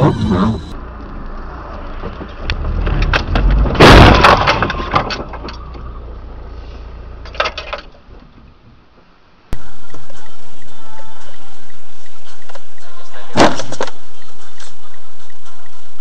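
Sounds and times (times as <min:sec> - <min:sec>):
engine and road rumble: 0:00.0 - 0:16.0
loud car crash impact: 0:02.6 - 0:05.6, 0:13.3 - 0:13.9
debris clattering: 0:02.8 - 0:05.6.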